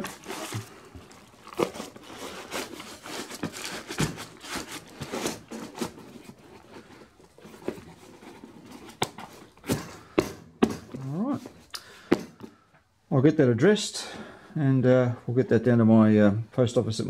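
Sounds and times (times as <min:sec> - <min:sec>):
newspaper crinkling: 0:00.0 - 0:09.8
cardboard flaps scraping: 0:00.0 - 0:12.2.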